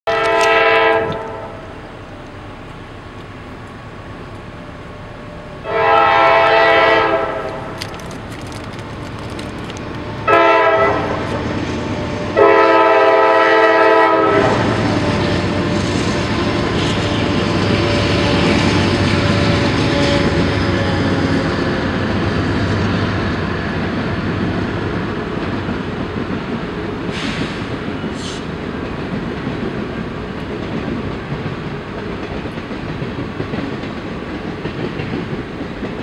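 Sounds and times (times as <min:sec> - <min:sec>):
locomotive air horn blasts: 0:00.1 - 0:01.8, 0:05.6 - 0:07.8, 0:10.2 - 0:11.3, 0:12.3 - 0:15.2
locomotive engines and wheels: 0:00.1 - 0:36.0.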